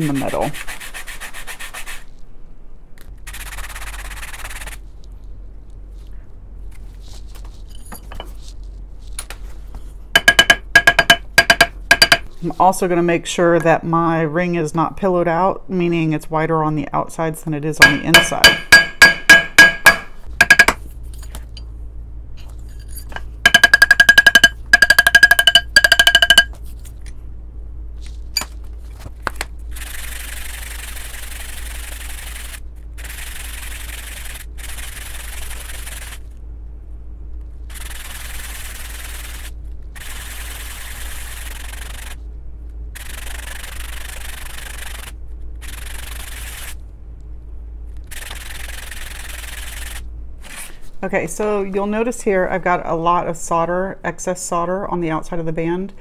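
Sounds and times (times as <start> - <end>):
metal rubbing on sandpaper: 0.0 - 2.2, 3.2 - 4.9, 29.7 - 36.3, 37.7 - 42.2, 43.0 - 46.8
hammer ringing on metal: 10.2 - 12.2, 17.8 - 20.8, 23.5 - 26.5.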